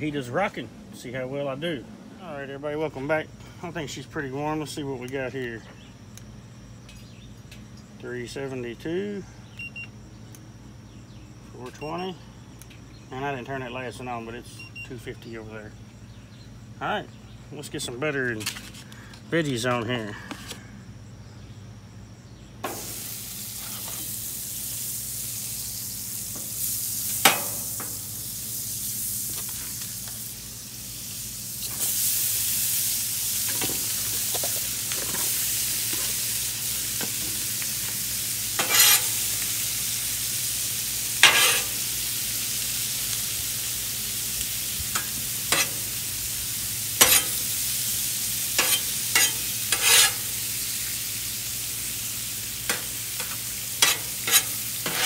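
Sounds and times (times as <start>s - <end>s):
butter sizzling on a griddle: 22.4s - 55.0s
metal spatula scraping griddle: 38.6s - 39.3s, 41.2s - 41.8s, 45.0s - 46.0s, 47.0s - 47.6s, 48.5s - 50.4s, 52.7s - 55.0s.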